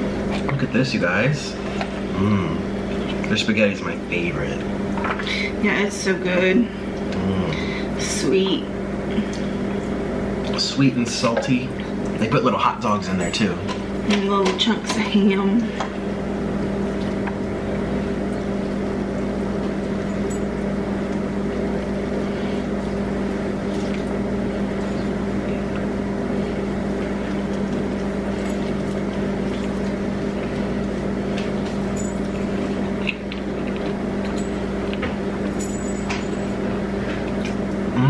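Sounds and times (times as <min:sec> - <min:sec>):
low mechanical hum: 0:00.0 - 0:38.0
eating sounds: 0:21.1 - 0:35.3.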